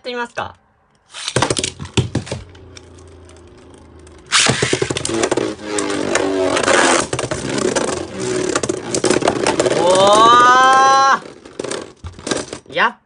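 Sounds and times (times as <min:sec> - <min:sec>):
top launcher rip: 0:01.1 - 0:01.8, 0:04.3 - 0:11.0
tops scraping against each other: 0:02.8 - 0:12.7
spinning top whirring: 0:04.1 - 0:12.4.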